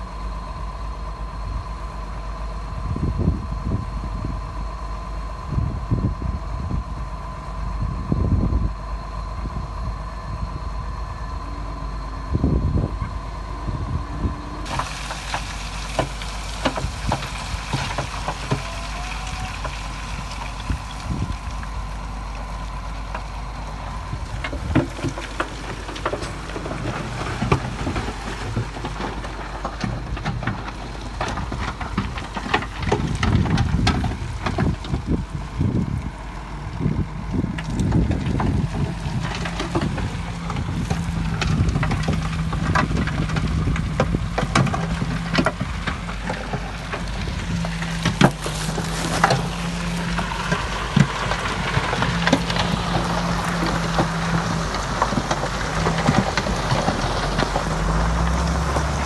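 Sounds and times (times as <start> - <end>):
diesel machinery engine hum: 0.0 - 59.0
machinery knocks and clatters: 37.6 - 59.0.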